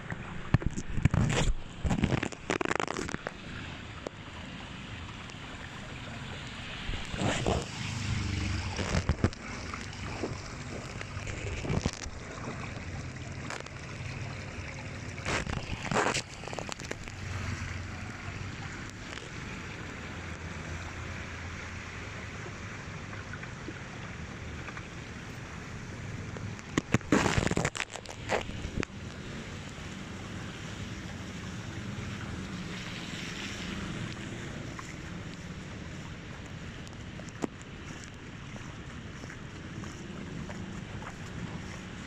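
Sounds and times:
water pouring into drain: 1.8s - 24.3s.

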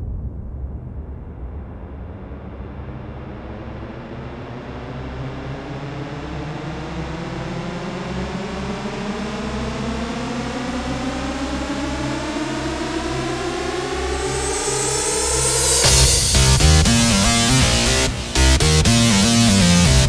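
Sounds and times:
hissing synth drone: 13.6s - 20.0s
pulsing low bass: 13.8s - 20.0s.

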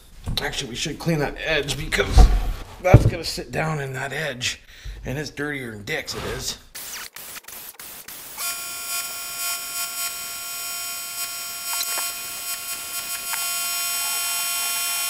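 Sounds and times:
die grinder whining: 8.4s - 15.0s.

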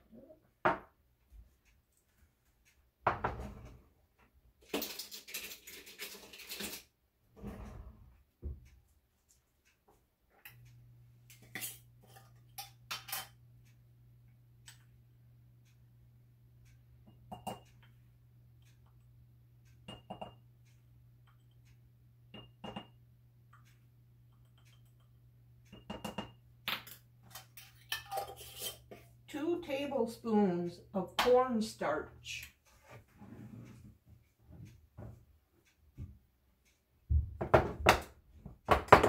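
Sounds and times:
low steady hum: 10.4s - 36.4s
metal spoon clinking on glass jar: 25.7s - 28.9s.

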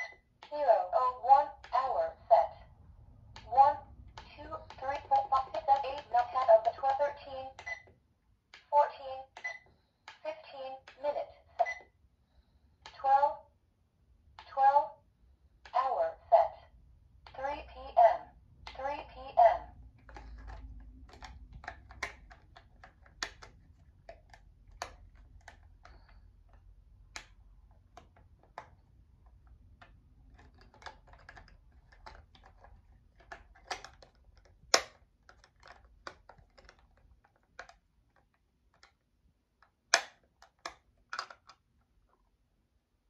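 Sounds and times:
plastic button clicks: 20.0s - 26.2s, 29.8s - 37.8s, 39.6s - 41.6s.

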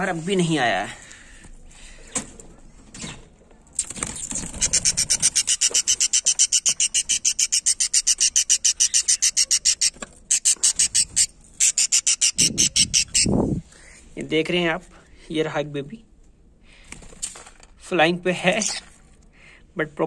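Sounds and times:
bird chick chirping: 3.8s - 13.4s.

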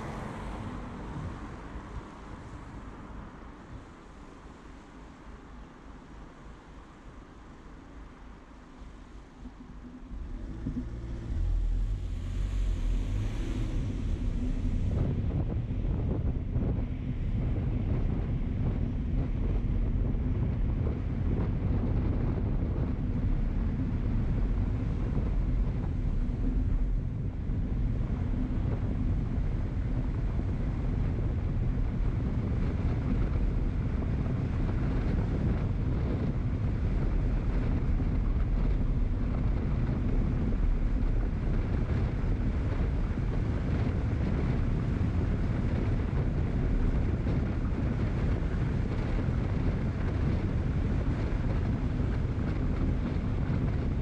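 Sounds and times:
road noise: 0.0s - 54.0s
wind rumble on microphone: 0.0s - 54.0s.

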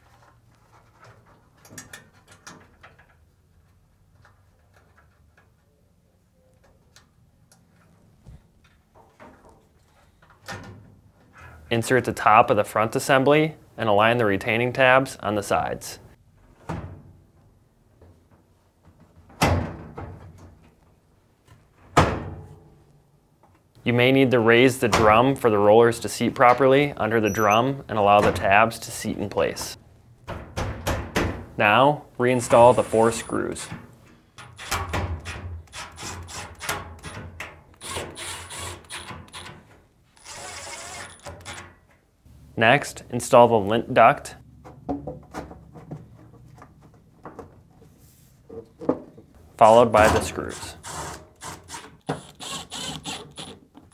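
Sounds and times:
power screwdriver driving screws: 37.8s - 39.5s, 40.2s - 41.6s, 50.8s - 53.6s.

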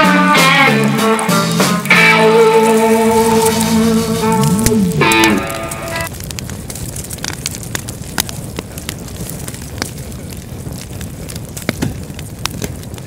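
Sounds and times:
guitar note: 0.0s - 6.1s
campfire crackling and popping: 0.0s - 13.0s.

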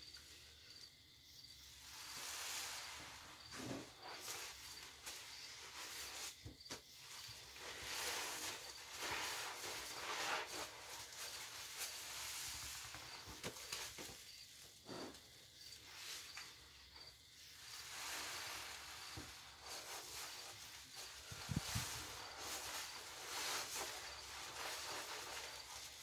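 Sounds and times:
foam fizzing crackle: 1.8s - 14.2s, 17.6s - 26.0s
sponges squelching: 2.3s - 14.2s.

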